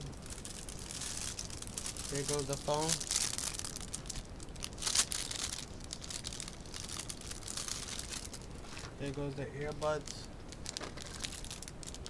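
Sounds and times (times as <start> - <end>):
plastic bags crinkling: 0.1 - 12.0.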